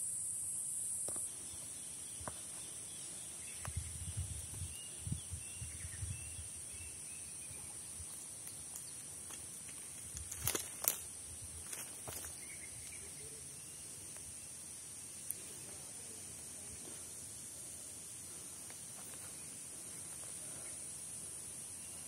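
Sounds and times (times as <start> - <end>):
faint bird chirps: 1.3 - 9.0.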